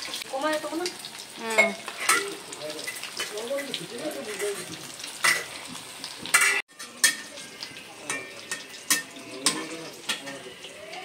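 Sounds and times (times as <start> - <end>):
fish deep-frying in oil: 0.0 - 11.0
utensil clinking against wok: 6.3 - 10.4.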